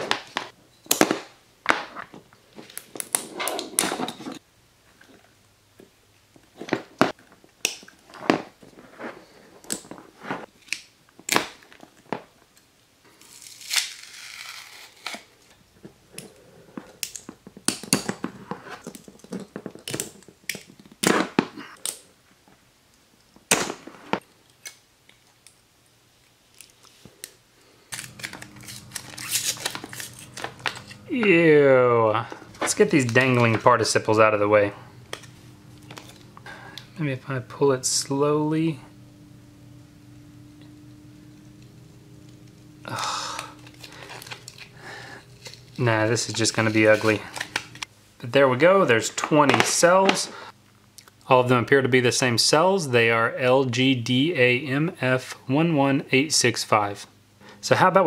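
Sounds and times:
wrapping rustling: 27.8s - 31.2s, 42.8s - 47.9s.

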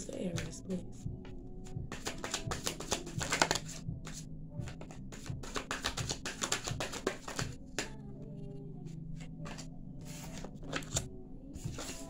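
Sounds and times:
faint background music: 0.0s - 12.0s
cards being shuffled: 1.9s - 8.0s, 9.4s - 11.1s, 11.7s - 12.0s.

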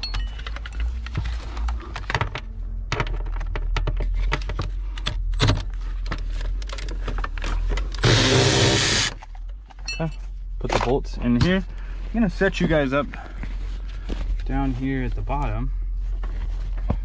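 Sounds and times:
power tool burst: 8.0s - 9.1s.

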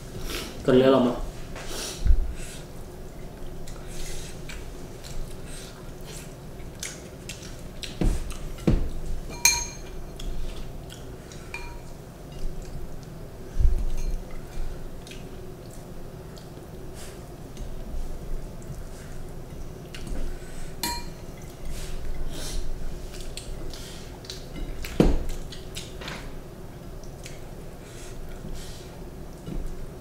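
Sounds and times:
ringing clink: 9.3s - 9.9s
tableware clinking: 9.3s - 10.1s, 11.5s - 11.9s, 13.9s - 14.2s, 20.8s - 21.2s.

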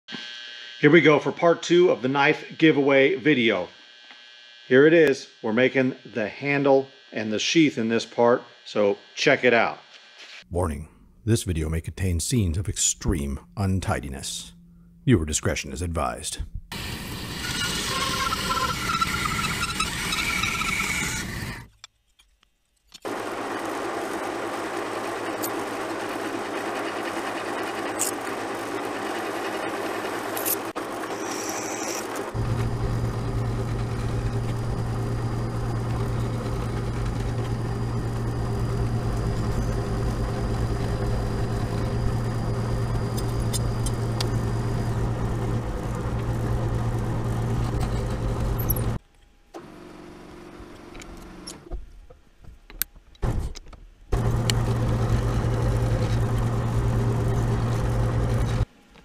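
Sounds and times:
quiet workshop noise: 0.1s - 11.3s, 16.4s - 23.1s, 27.1s - 41.0s, 41.6s - 59.0s
drill press drilling wood: 23.1s - 49.0s, 54.2s - 58.6s.

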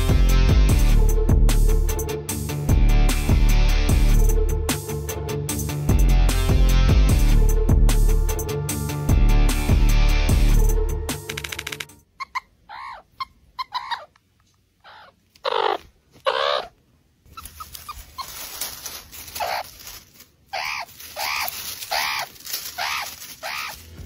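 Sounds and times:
meerkat pups squeaky chirps: 11.3s - 14.2s, 14.8s - 23.9s.

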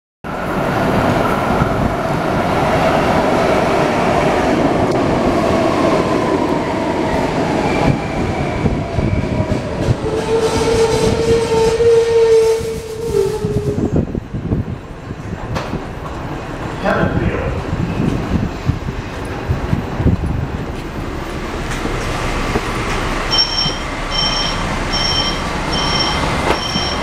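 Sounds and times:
train wheels rumbling on rail: 0.3s - 27.0s
loud steady tone: 23.3s - 27.0s.

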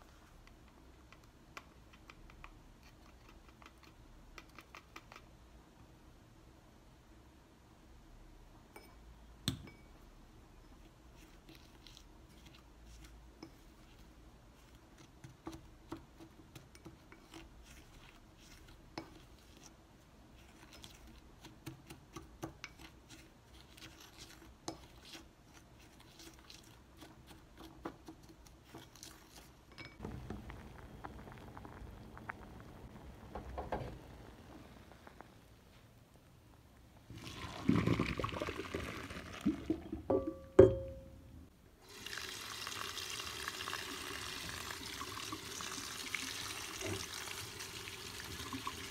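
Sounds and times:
spoon scraping glass bowl: 10.6s - 14.0s, 16.7s - 19.7s, 20.4s - 21.2s
water boiling: 29.6s - 35.7s, 36.9s - 40.4s, 41.8s - 48.9s.

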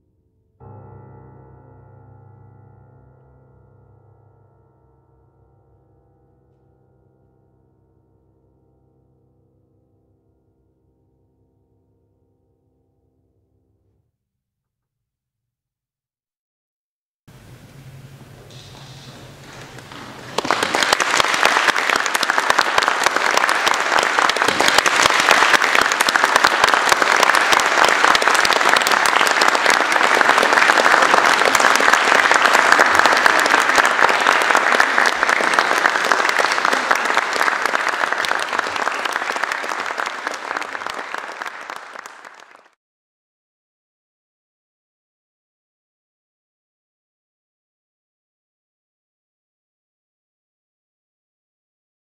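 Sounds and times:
audience applauding: 18.4s - 42.8s.

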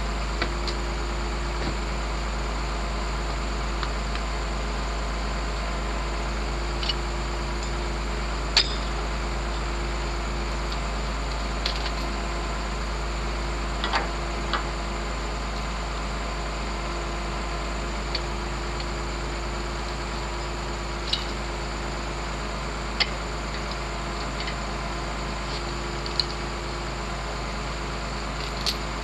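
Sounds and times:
engine idling hum: 0.0s - 29.0s
sharp clicks and clinks: 8.6s - 8.9s.

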